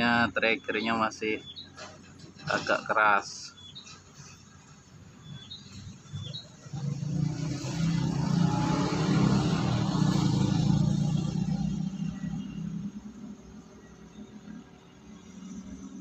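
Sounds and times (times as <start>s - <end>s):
motor vehicle passing by: 5.5s - 16.0s.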